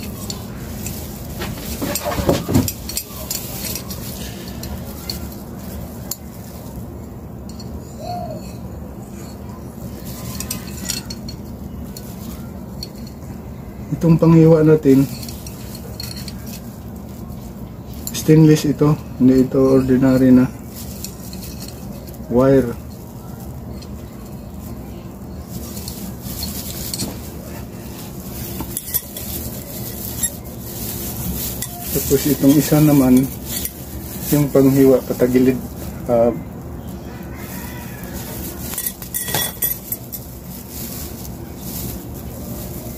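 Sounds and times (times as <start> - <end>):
glass bottle and metal tools clinking: 0.0 - 5.4, 10.1 - 12.2, 14.8 - 16.6, 28.1 - 35.8, 38.6 - 40.5
low background noise: 0.0 - 42.9
steady low hum: 0.0 - 42.9.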